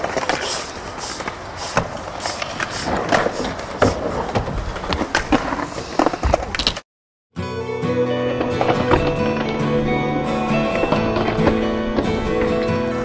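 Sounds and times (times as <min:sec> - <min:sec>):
scooter wheels rolling on concrete: 0:00.0 - 0:06.8, 0:08.2 - 0:13.0.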